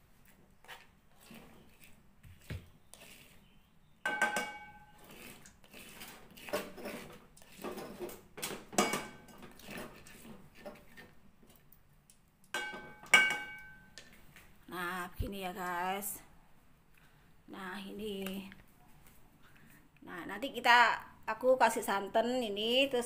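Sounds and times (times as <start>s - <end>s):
spatula scraping stone mortar: 0.2s - 3.7s, 4.7s - 8.4s, 9.2s - 11.2s.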